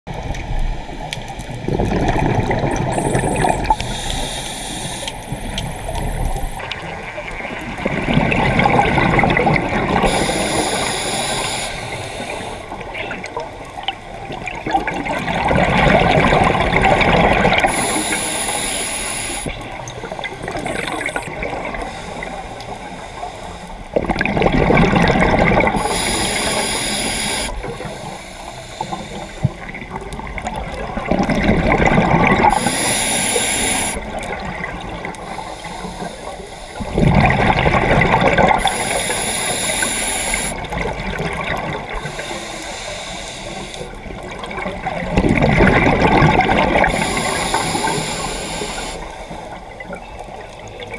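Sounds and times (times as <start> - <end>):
exhaled bubbles gushing underwater: 0.1 - 50.9
regulator hiss on inhalation: 3.0 - 6.8, 10.0 - 12.7, 17.7 - 19.6, 25.8 - 29.6, 32.5 - 34.1, 35.3 - 37.0, 38.6 - 40.6, 42.0 - 44.0, 46.8 - 49.6.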